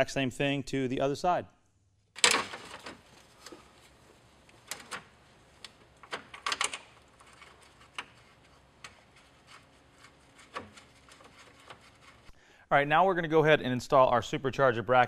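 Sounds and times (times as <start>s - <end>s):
clicks of plastic fan shroud handled: 2.2s - 12.3s.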